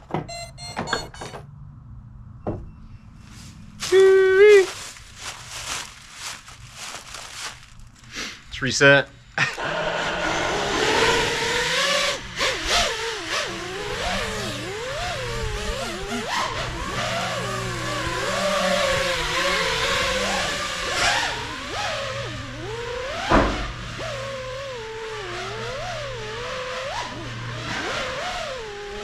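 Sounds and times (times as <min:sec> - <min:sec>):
rush of air: 0:09.4 - 0:12.5
quadcopter motors whining: 0:09.4 - 0:29.0
sharp thump: 0:23.2 - 0:23.7.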